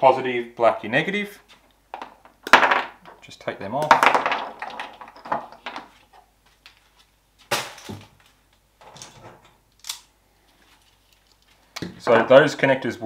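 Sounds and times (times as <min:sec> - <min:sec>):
tools and parts handled: 0:07.6 - 0:11.7.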